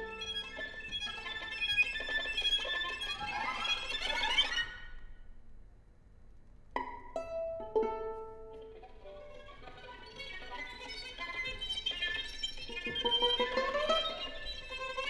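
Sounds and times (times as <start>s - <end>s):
plucked string notes: 6.8s - 15.0s
bowed strings glissandi: 6.9s - 15.0s.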